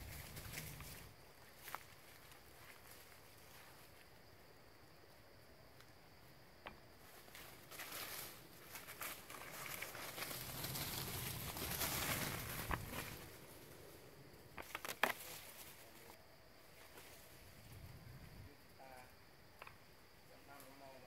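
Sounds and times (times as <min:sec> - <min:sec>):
leaves and twigs crunching: 0:00.0 - 0:04.1, 0:07.0 - 0:13.9, 0:14.6 - 0:17.6.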